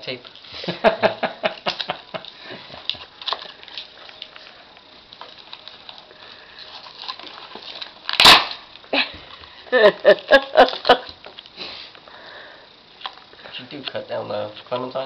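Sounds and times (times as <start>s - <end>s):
duct tape ripping and crackling: 1.6s - 8.9s.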